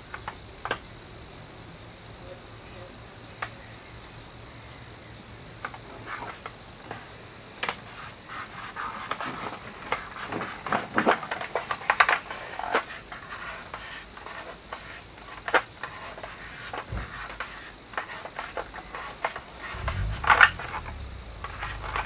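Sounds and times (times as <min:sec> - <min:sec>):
sticker backing scratching: 0:15.8 - 0:22.0.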